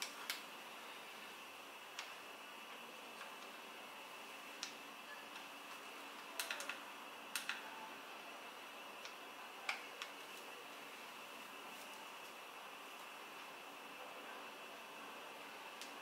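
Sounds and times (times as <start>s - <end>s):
quiet hiss: 0.0s - 16.0s.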